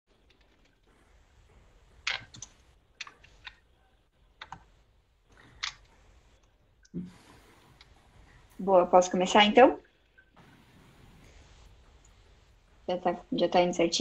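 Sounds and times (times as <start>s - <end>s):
computer mouse clicking: 2.0s - 3.6s, 4.4s - 4.7s.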